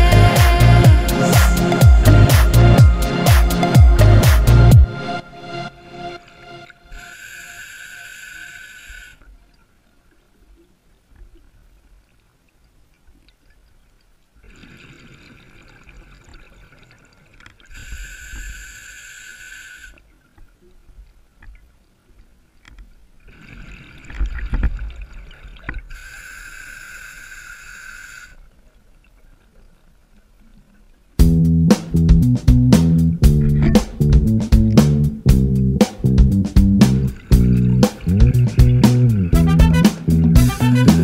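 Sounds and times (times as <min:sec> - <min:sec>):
regulator inhale hiss: 0:07.0 - 0:09.2, 0:17.7 - 0:20.0, 0:25.9 - 0:28.4.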